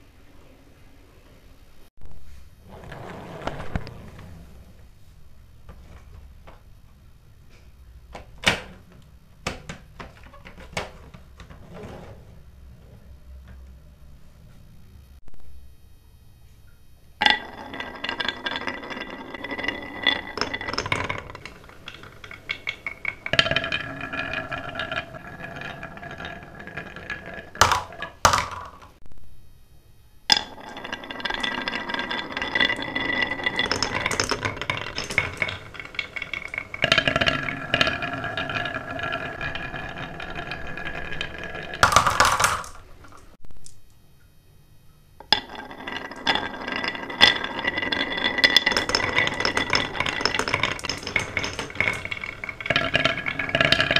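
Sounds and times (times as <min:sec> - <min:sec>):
marbles clinking: 0:17.2 - 0:29.0, 0:30.3 - 0:43.8, 0:45.2 - 0:53.9
marbles rolling down wooden run: 0:17.2 - 0:29.0, 0:30.3 - 0:43.4, 0:45.2 - 0:53.9.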